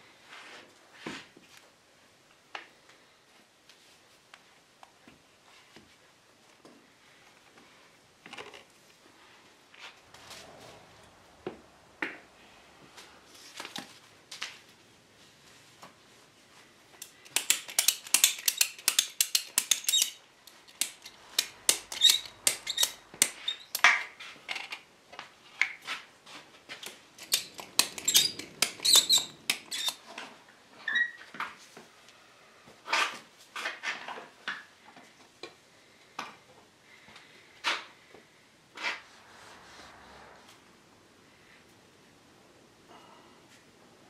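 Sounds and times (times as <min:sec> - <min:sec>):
ratchet strap clicking: 0:17.0 - 0:23.8, 0:26.8 - 0:30.0
clicks and knocks of handling: 0:17.0 - 0:24.8, 0:26.7 - 0:30.3.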